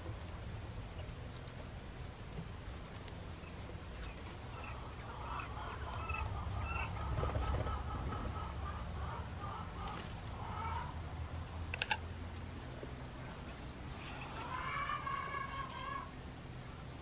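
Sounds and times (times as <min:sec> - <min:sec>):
low steady hum: 0:00.0 - 0:17.0
quail calling: 0:04.5 - 0:11.0, 0:14.0 - 0:16.1.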